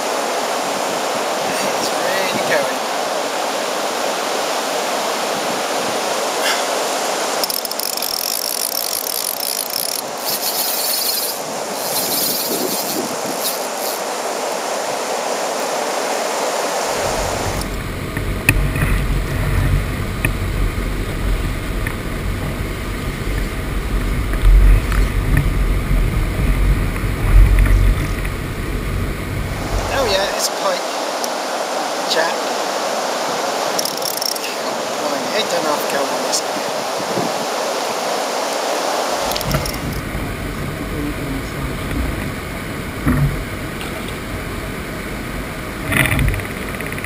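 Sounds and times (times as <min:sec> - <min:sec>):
water pouring over weir: 0:07.4 - 0:14.1
low rumble with knocks: 0:17.0 - 0:29.9, 0:39.3 - 0:44.2.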